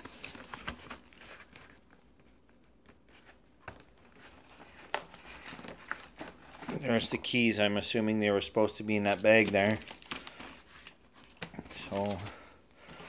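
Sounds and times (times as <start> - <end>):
rustling and scraping of pulp packing: 3.0 - 7.5, 9.3 - 13.0.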